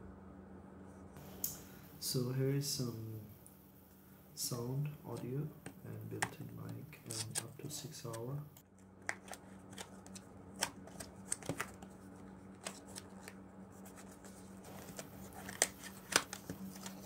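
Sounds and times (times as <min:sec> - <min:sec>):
faint low hum: 0:00.0 - 0:17.0
card clicks and taps: 0:09.0 - 0:11.8.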